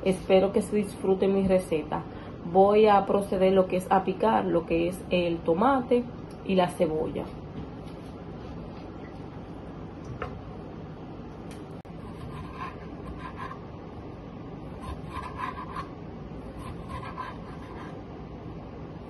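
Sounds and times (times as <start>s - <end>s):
low background hum: 0.0s - 19.0s
knife slicing tomato on board: 11.9s - 13.6s.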